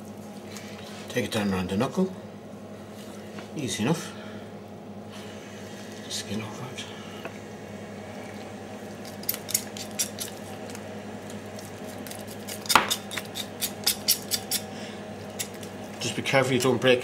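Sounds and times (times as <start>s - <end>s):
knife cutting raw meat: 9.0s - 10.4s, 11.5s - 14.7s.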